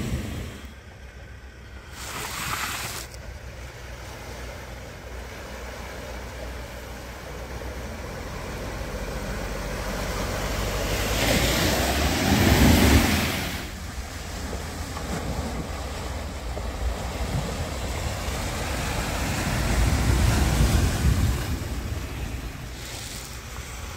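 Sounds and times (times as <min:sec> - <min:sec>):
pickup engine rumble: 0:00.0 - 0:23.9
water rushing and splashing: 0:01.8 - 0:23.9
wind gusts on microphone: 0:10.6 - 0:23.9.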